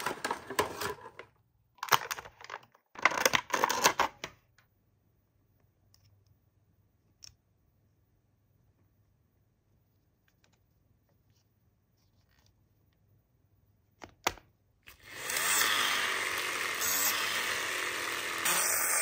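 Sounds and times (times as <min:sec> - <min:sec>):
plastic toy parts clicking: 0:01.8 - 0:04.3
wind-up gear whirring: 0:14.9 - 0:19.0.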